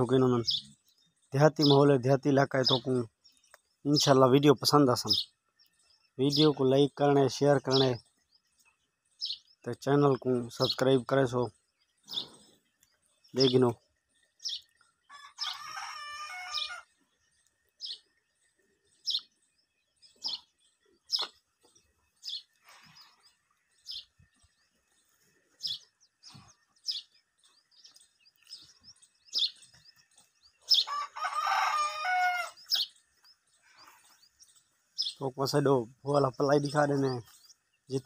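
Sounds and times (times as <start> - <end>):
rooster crowing: 15.1 - 16.9, 30.7 - 32.7
short high bird chirps: 19.0 - 19.3, 20.1 - 21.5, 25.6 - 30.9, 32.4 - 35.2.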